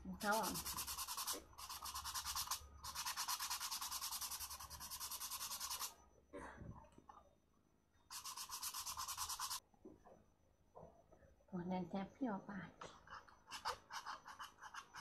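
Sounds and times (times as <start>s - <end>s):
sandpaper rasping on wood: 0.2s - 5.9s.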